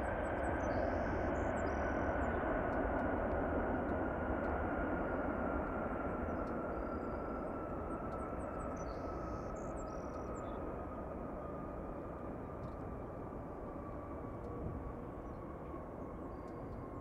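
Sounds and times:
jet engine rush and whine: 0.0 - 17.0.

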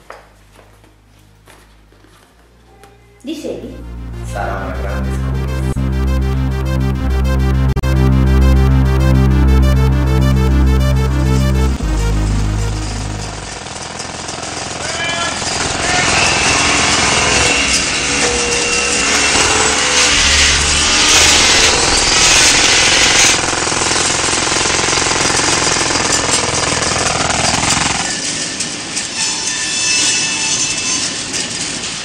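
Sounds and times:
jackhammer hammering: 12.2 - 28.2.

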